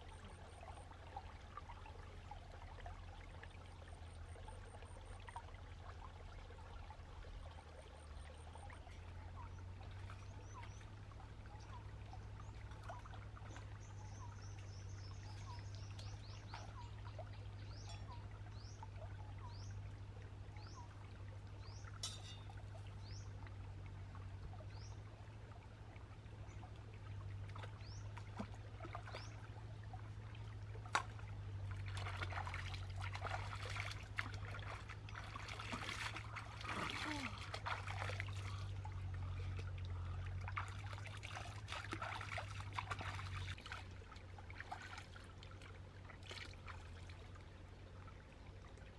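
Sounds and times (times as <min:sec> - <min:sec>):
stream trickling over rocks: 0:00.0 - 0:48.9
bird chirping: 0:13.6 - 0:17.0, 0:17.6 - 0:18.8
hands splashing water: 0:30.8 - 0:38.8, 0:40.5 - 0:43.9.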